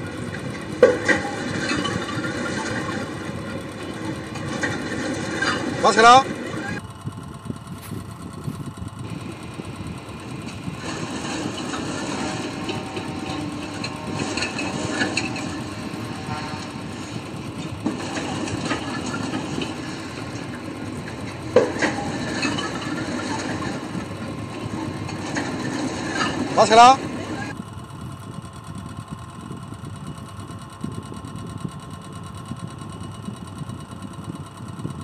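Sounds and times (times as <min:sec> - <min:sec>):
dehusking machine running: 0:00.0 - 0:35.0
rattles: 0:00.1 - 0:06.8, 0:07.6 - 0:27.6.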